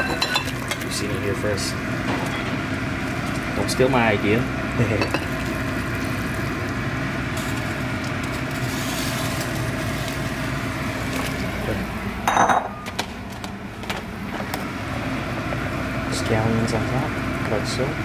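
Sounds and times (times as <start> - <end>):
kitchenware clink: 0.0 - 0.9, 4.9 - 5.4, 12.2 - 12.9
kitchen hum: 0.0 - 18.0.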